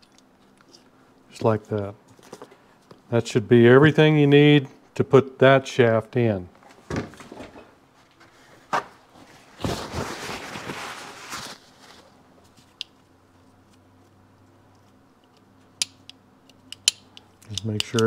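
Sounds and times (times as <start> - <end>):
handling rustling: 6.8 - 12.8.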